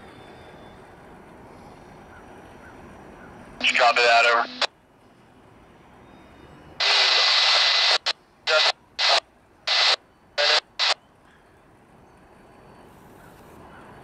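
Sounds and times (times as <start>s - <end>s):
radio static bursts: 3.6s - 4.7s, 6.8s - 11.0s.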